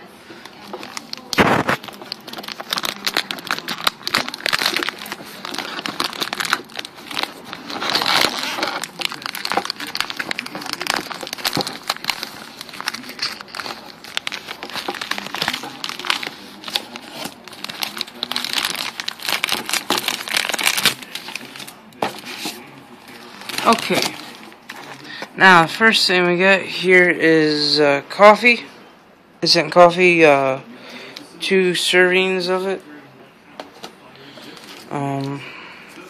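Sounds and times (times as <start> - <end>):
packaging crinkling: 0.4 - 25.3.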